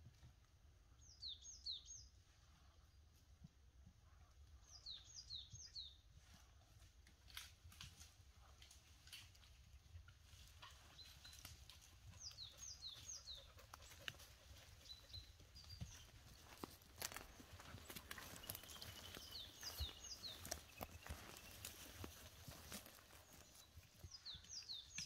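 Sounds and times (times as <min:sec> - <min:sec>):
horse hoof steps: 0:10.4 - 0:25.0
small bird calling: 0:11.3 - 0:25.0.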